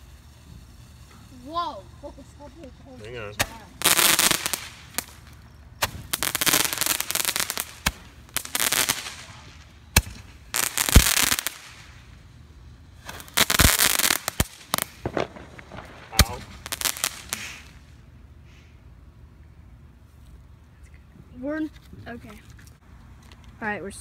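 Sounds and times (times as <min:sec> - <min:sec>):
fireworks crackling hiss: 0:00.0 - 0:20.6
fireworks pops and bangs: 0:02.6 - 0:12.1, 0:13.0 - 0:17.9.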